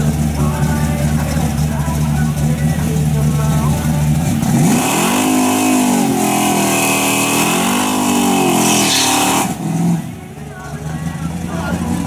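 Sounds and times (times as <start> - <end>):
engine revving hard: 4.1 - 10.2.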